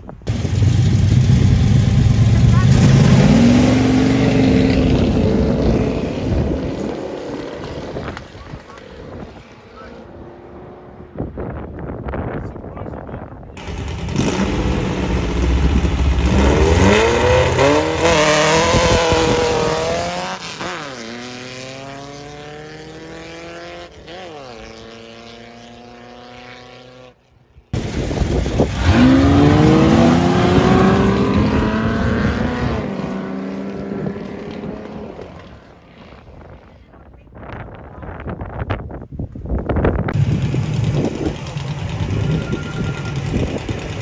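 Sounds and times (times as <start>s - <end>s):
racing engine revving: 1.0s - 11.2s, 13.6s - 27.0s, 28.5s - 36.2s.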